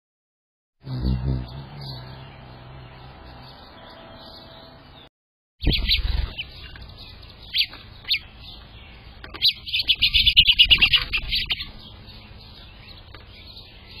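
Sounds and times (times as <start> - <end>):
finches chirping: 5.6 - 14.0.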